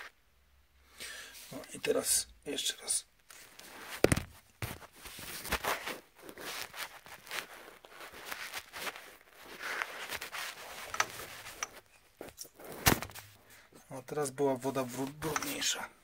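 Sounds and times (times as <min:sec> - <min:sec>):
hands rustling phone: 0:03.2 - 0:13.8, 0:14.8 - 0:15.8.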